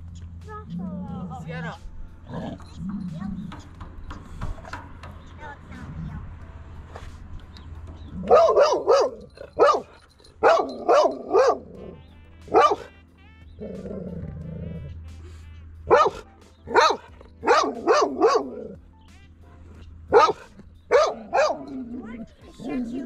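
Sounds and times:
dog growling: 0:02.2 - 0:03.5, 0:13.6 - 0:15.0, 0:20.2 - 0:23.0
dog barking: 0:08.1 - 0:13.0, 0:15.9 - 0:18.8, 0:20.1 - 0:23.0.

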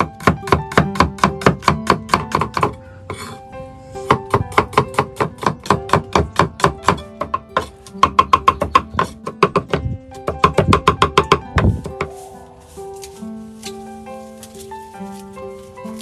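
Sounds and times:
cleaver chopping on wooden board: 0:00.0 - 0:02.8, 0:04.0 - 0:12.1
soft background music: 0:00.0 - 0:16.0.

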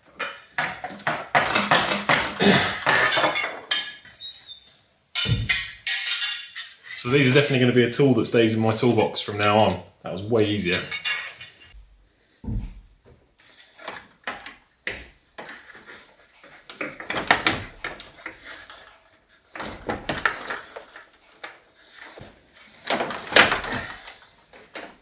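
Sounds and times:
plastic scraping and rattling: 0:13.7 - 0:25.0.

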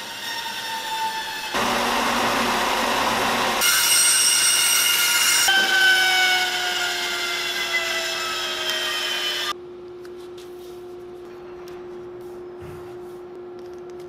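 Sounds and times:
band saw cutting: 0:00.0 - 0:09.6.

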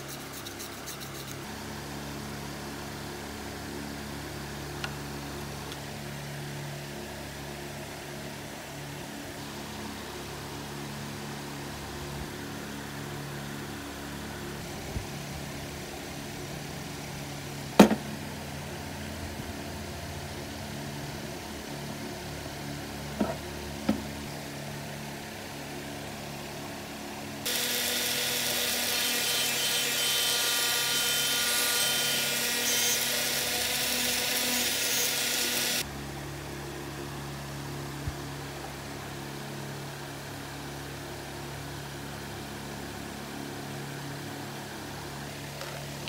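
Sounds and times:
electric power tool whining: 0:27.4 - 0:35.8.

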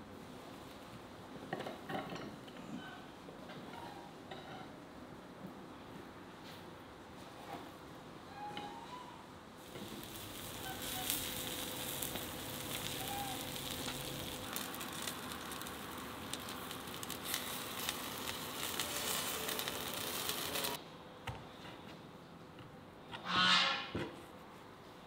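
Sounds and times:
meat sizzling and crackling: 0:09.6 - 0:20.8.

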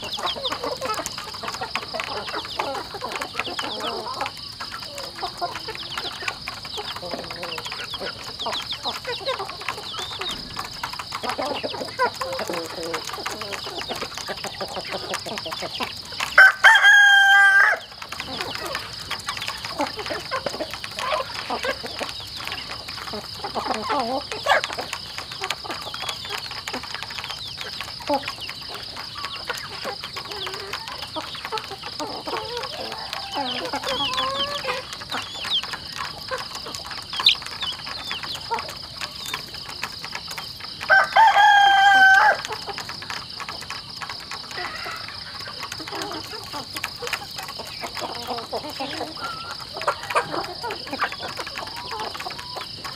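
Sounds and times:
chickens clucking: 0:00.0 - 0:52.9
rooster crowing: 0:16.4 - 0:17.9, 0:40.9 - 0:42.4.

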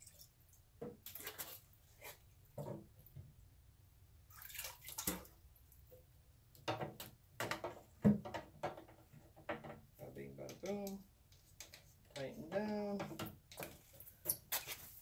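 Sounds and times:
water splashing and dripping: 0:00.0 - 0:02.2, 0:04.3 - 0:06.0.

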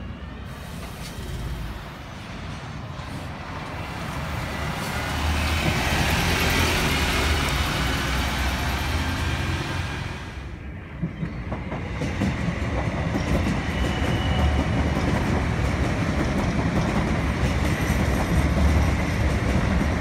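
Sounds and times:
bus engine rumble: 0:00.0 - 0:10.6.

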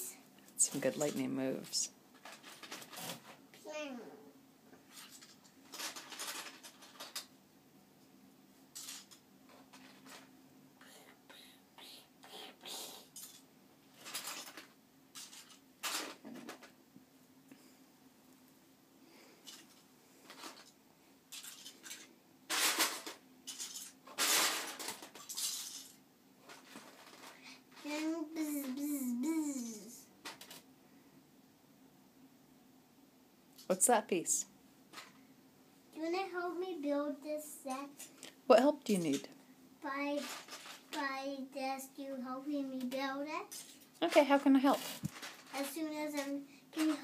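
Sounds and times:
plastic bricks clattering: 0:04.9 - 0:07.3, 0:08.8 - 0:10.3, 0:14.0 - 0:16.7, 0:21.3 - 0:28.1, 0:40.2 - 0:40.9, 0:43.6 - 0:47.0.

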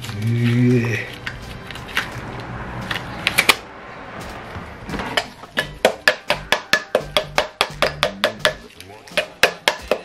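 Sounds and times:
hammer striking metal axle: 0:05.0 - 0:10.0.

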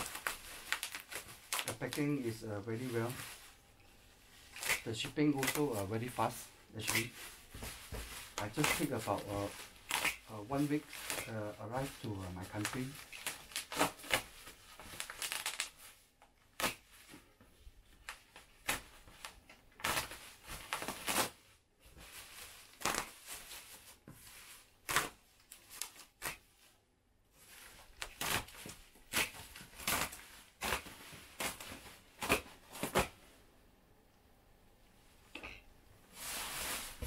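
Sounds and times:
tape tearing: 0:00.0 - 0:03.4, 0:04.5 - 0:15.9, 0:16.5 - 0:17.0, 0:18.0 - 0:21.4, 0:22.3 - 0:23.9, 0:24.8 - 0:26.5, 0:27.5 - 0:33.2
bubble wrap crinkling: 0:00.0 - 0:26.7, 0:27.3 - 0:33.2, 0:36.1 - 0:37.0.

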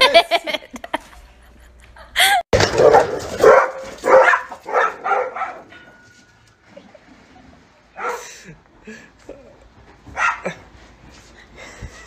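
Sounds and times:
dog barking: 0:02.7 - 0:05.7, 0:08.0 - 0:08.3, 0:10.1 - 0:10.6
dog yelp: 0:02.7 - 0:05.7, 0:10.2 - 0:10.5.

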